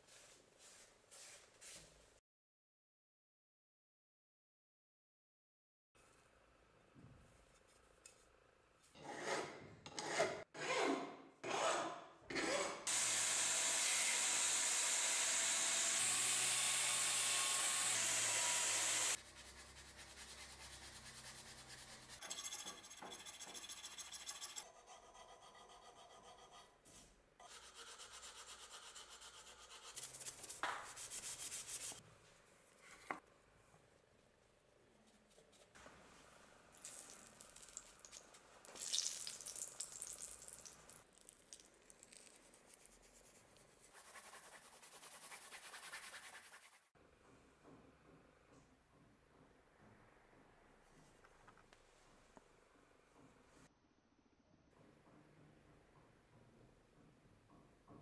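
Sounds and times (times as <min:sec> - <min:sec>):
filing strokes: 0:18.6 - 0:32.0, 0:42.5 - 0:46.9
abrasive rubbing on wooden handle: 0:20.0 - 0:26.7.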